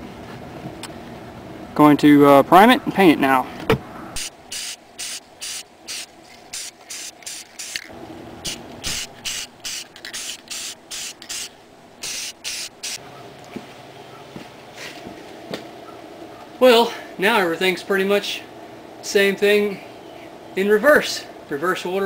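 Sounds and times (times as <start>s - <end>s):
spray paint can hissing: 4.2s - 13.0s.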